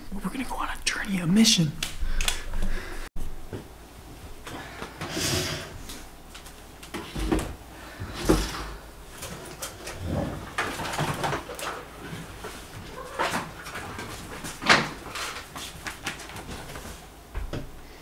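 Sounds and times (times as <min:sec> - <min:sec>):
objects knocking and thumping: 0:06.4 - 0:17.8.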